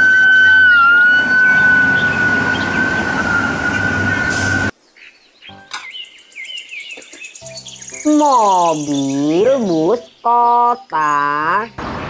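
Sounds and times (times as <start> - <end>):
fire truck siren: 0.0 - 4.7
street traffic rumble: 0.0 - 4.7, 11.3 - 12.0.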